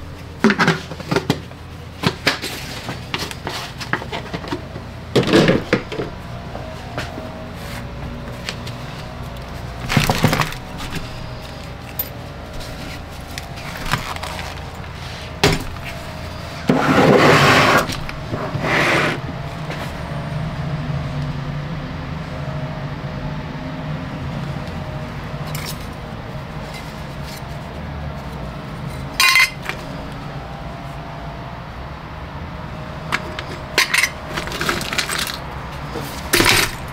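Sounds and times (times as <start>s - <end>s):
steady low hum: 0.0s - 36.9s
hard objects clinking and clattering: 8.4s - 19.8s, 25.5s - 26.0s, 28.9s - 29.9s, 33.1s - 36.9s.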